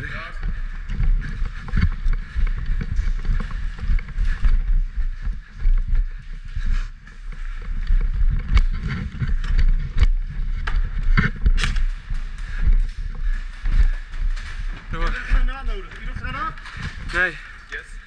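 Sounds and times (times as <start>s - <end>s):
footsteps on wooden ramp: 0.0s - 17.6s
body-worn camera jostling: 7.8s - 15.2s.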